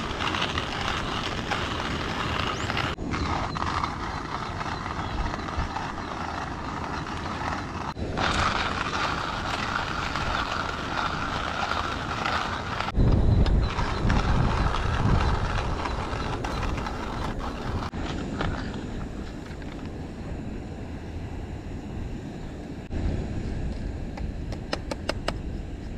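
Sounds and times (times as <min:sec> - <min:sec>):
coffee grinder grinding: 0:00.0 - 0:13.0, 0:13.6 - 0:18.6
wind rumble on microphone: 0:00.0 - 0:25.9.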